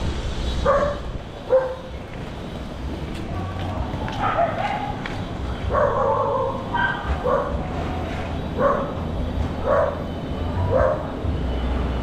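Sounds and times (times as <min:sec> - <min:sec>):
dog barking: 0:00.6 - 0:01.9, 0:04.2 - 0:05.0, 0:05.7 - 0:07.6, 0:08.6 - 0:09.0, 0:09.6 - 0:10.0, 0:10.7 - 0:11.1.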